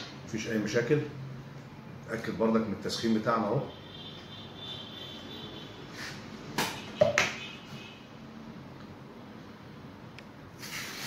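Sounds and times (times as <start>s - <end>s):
water hissing on hot iron: 10.6s - 11.0s.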